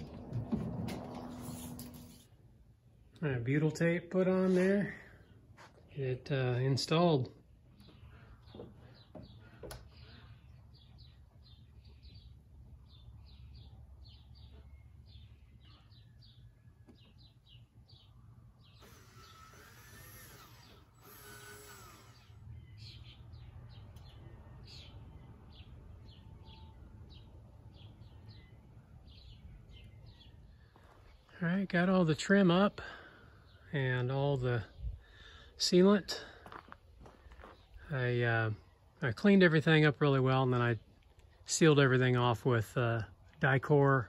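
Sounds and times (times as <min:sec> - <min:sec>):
steady low rumble: 0:00.0 - 0:03.2.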